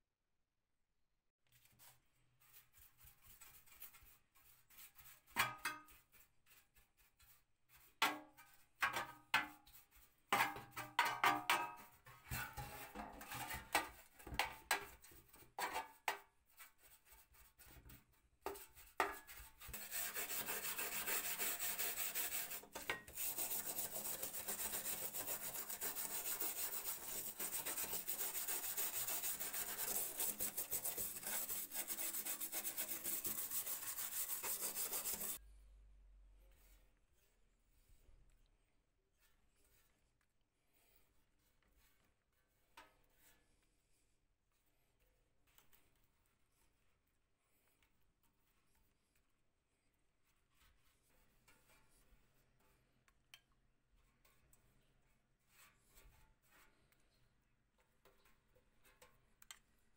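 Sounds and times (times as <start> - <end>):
brush scrubbing sheet metal: 1.5 - 35.4, 58.1 - 59.1.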